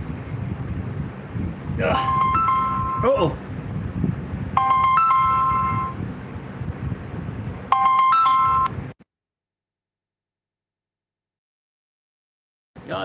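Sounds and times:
phone ringtone: 2.0s - 3.2s, 4.6s - 6.0s, 7.7s - 8.8s.

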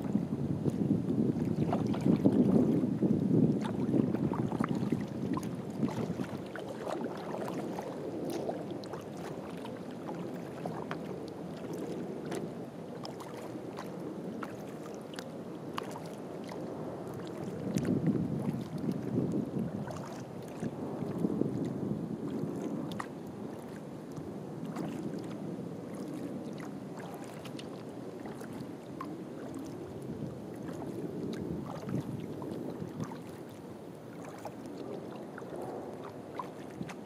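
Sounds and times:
paddle splashes: 0.0s - 37.0s
water lapping and dripping: 0.0s - 37.0s
wind rumble on microphone: 0.0s - 37.0s.

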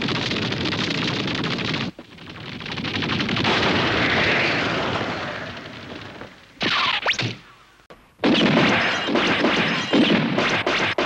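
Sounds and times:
rapid crackling rattle: 0.0s - 6.6s.

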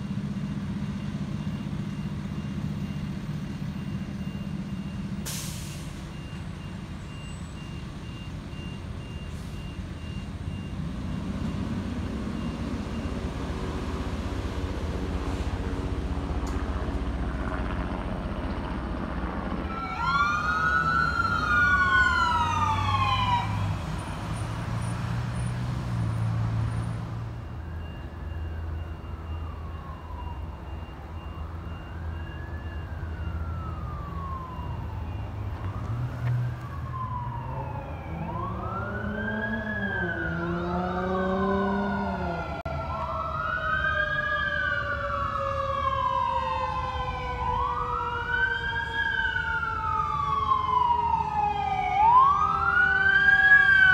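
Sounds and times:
low engine and traffic rumble: 0.0s - 53.9s
sirens wailing: 0.0s - 53.9s.

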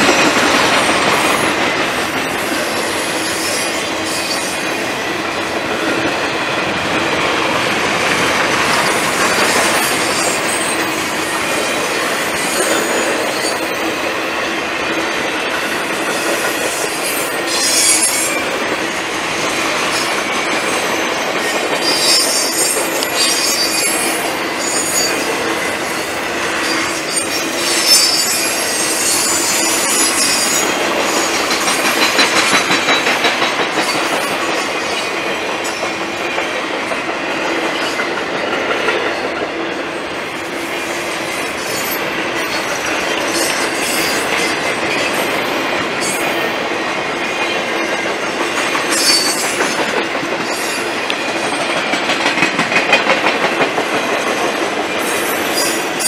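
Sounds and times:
train wheels clattering over rail joints: 0.0s - 39.8s, 40.6s - 56.0s
high-pitched wheel squeals: 16.8s - 18.4s, 21.8s - 25.3s, 26.6s - 31.3s.

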